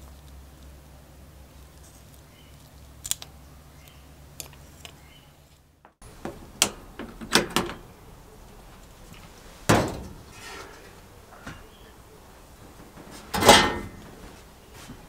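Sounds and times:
heavy door clunk: 6.0s - 14.4s
metal lever latch clicks: 6.6s - 7.9s.

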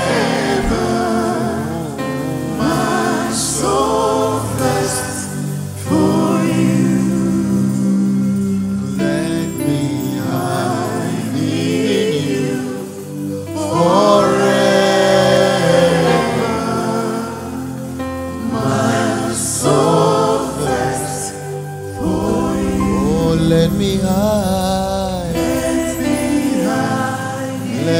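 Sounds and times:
man singing lead: 0.0s - 17.6s, 18.5s - 27.9s
women singing backing vocals: 0.0s - 24.6s, 25.2s - 27.9s
sustained instrumental accompaniment: 0.0s - 27.9s.

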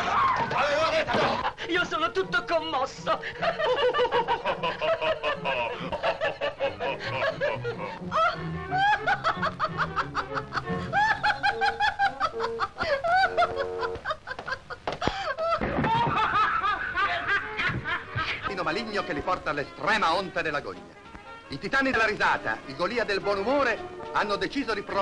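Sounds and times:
men laughing: 0.0s - 1.7s, 3.0s - 19.0s
background music: 0.0s - 25.0s.

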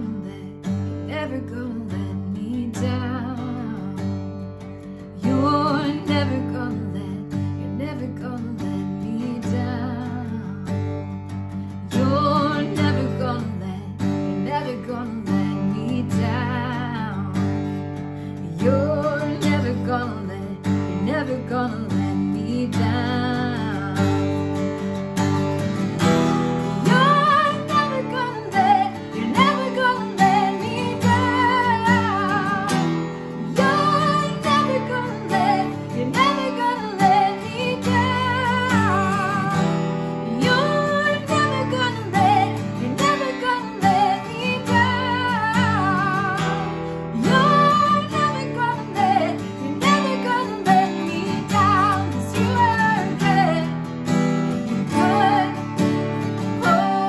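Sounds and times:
woman singing with vibrato: 0.0s - 4.2s, 5.2s - 10.8s, 11.9s - 17.4s, 18.3s - 24.4s, 26.4s - 54.0s, 54.7s - 57.0s
acoustic guitar strumming: 0.0s - 57.0s.

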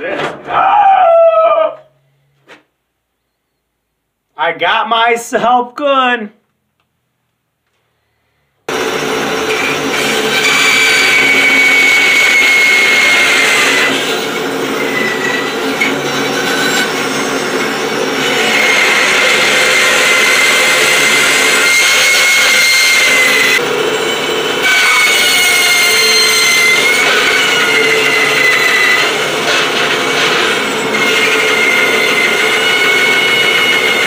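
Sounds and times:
bandsaw cutting brush: 8.7s - 34.0s.

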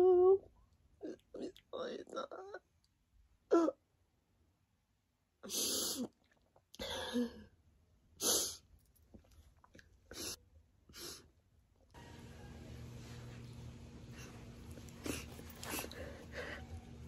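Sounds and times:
steady low hum: 12.0s - 17.0s.

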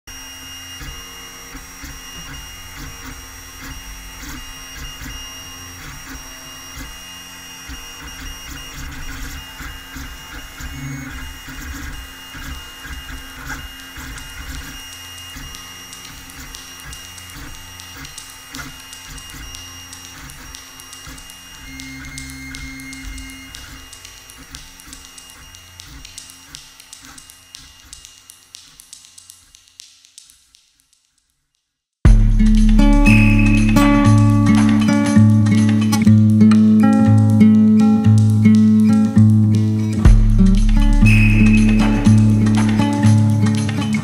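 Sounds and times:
held tones: 0.1s - 28.5s, 32.1s - 44.0s
machine-like whirring texture: 0.1s - 30.6s, 32.1s - 44.0s
low pulses: 32.1s - 36.4s, 39.5s - 44.0s.

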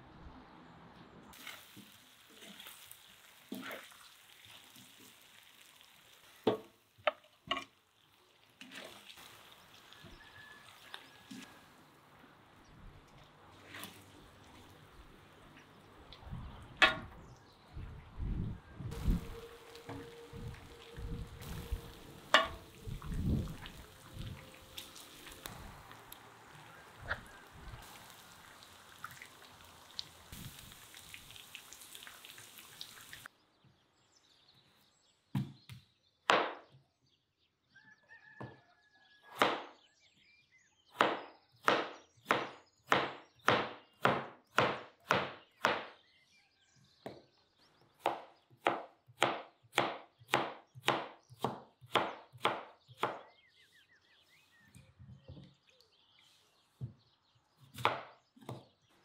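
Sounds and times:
steady hiss: 18.9s - 33.3s.

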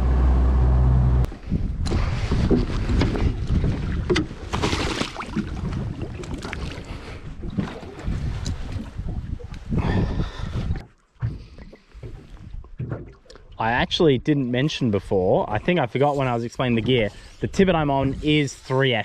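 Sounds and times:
boat motor running: 0.0s - 1.3s
water slapping boat hull: 1.8s - 9.7s, 10.4s - 13.6s
drift sock splashing into water: 4.5s - 6.6s.

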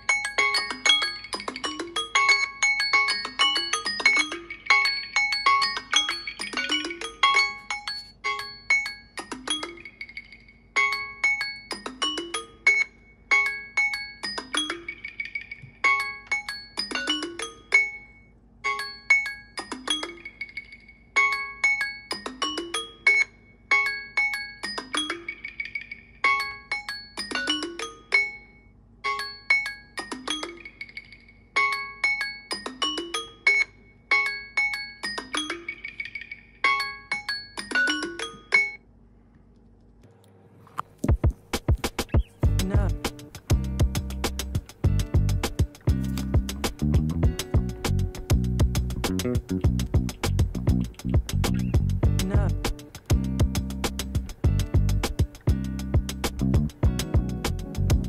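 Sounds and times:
phone timer alarm marimba tune: 0.0s - 38.8s.

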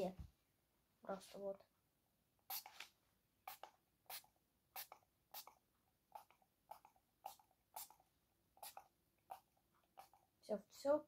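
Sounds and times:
perfume atomizer spritzing: 3.5s - 5.5s, 6.2s - 8.0s, 8.6s - 9.4s.

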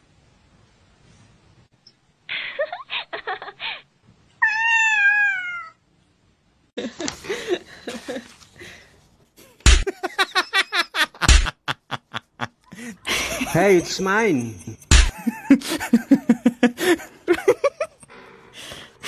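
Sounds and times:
cat meowing: 4.4s - 5.8s
sharp clicks and thumps: 9.6s - 9.9s, 11.2s - 11.6s, 14.8s - 15.2s.

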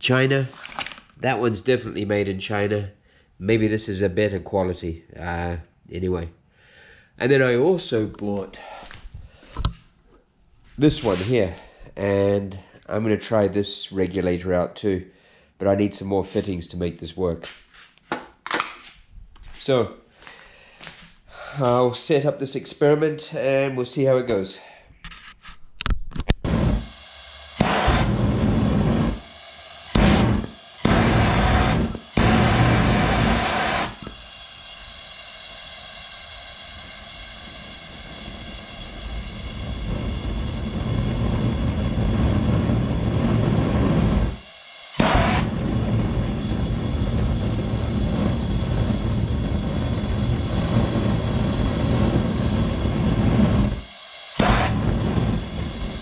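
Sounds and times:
gas burner roaring: 26.4s - 56.0s.

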